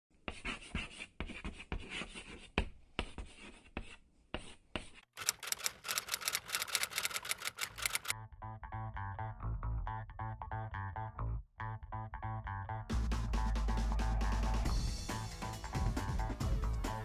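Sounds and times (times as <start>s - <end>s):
chalk scratching on chalkboard: 0.2s - 5.1s
quick even clicks: 5.2s - 8.1s.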